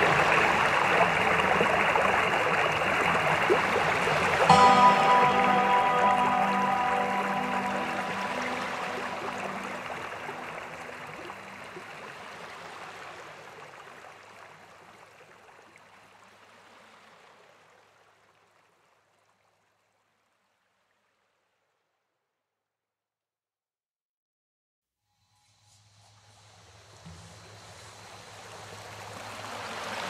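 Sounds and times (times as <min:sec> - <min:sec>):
sea waves washing onto beach: 0:00.0 - 0:14.2, 0:27.0 - 0:30.0.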